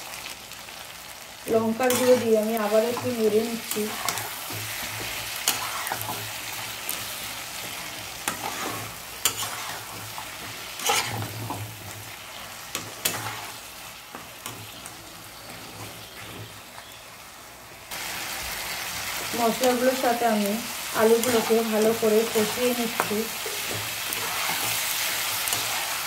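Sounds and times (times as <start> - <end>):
vegetables sizzling in oil: 0.0 - 26.0
metal spatula scraping a pan: 1.8 - 6.8, 7.6 - 16.3, 21.2 - 26.0.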